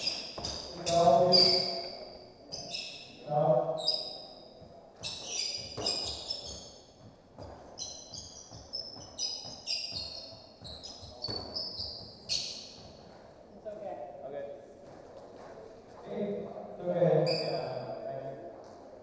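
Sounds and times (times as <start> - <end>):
shoes squeaking on hardwood floor: 0.0 - 13.5, 17.0 - 19.0
soft thuds of footsteps: 4.5 - 13.5, 14.7 - 16.1.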